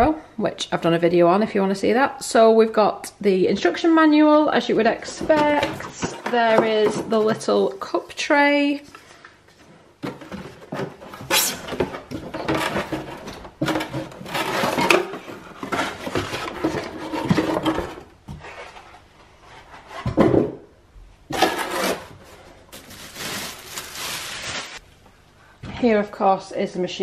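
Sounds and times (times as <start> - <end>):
cardboard packaging scraping: 10.6 - 20.1, 21.3 - 24.8
plastic wrapping crinkling: 21.7 - 24.9.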